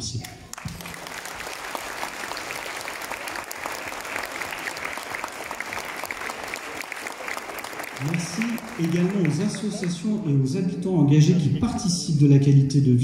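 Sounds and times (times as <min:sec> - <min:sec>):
audience applauding: 0:00.5 - 0:10.2.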